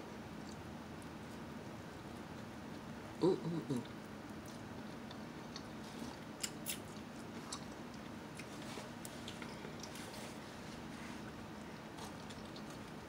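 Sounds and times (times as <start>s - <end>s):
chewing sandwich: 3.7s - 13.0s.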